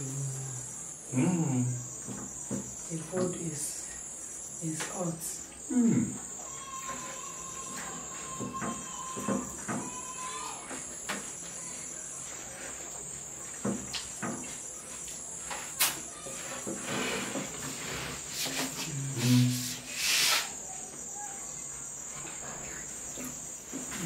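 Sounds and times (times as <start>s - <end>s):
crickets chirping: 0.0s - 24.0s.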